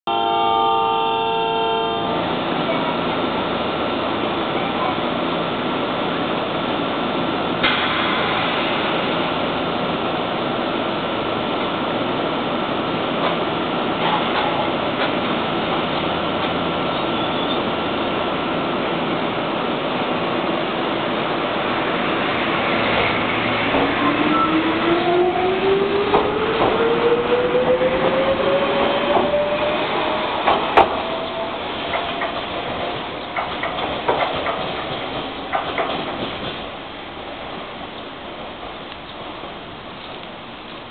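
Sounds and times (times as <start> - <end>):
train equipment running: 2.0 - 40.9
train doors sliding shut: 7.5 - 10.8, 13.0 - 19.3, 20.9 - 39.5.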